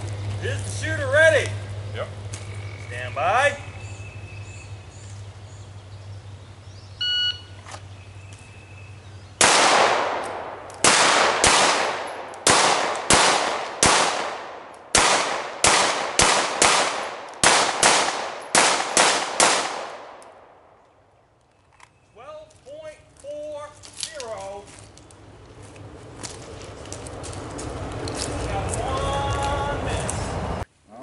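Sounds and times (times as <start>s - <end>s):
shot timer beep: 7.0s - 7.5s
handgun shots with echo: 9.4s - 20.3s.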